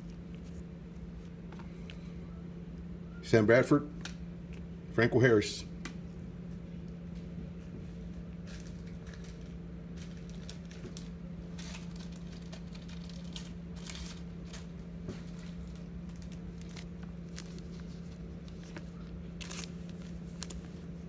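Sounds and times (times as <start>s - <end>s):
steady low hum: 0.0s - 21.0s
plastic wrapper crinkling: 8.4s - 20.9s.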